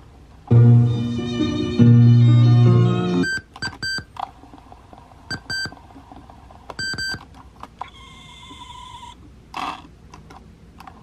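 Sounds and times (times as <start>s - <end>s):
steady tone: 0.5s - 3.3s
short electronic beeps: 6.8s - 7.2s.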